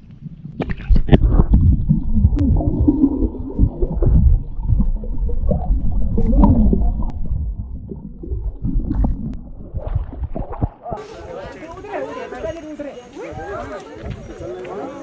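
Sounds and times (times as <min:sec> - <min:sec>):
muffled underwater water churning: 0:00.0 - 0:11.4.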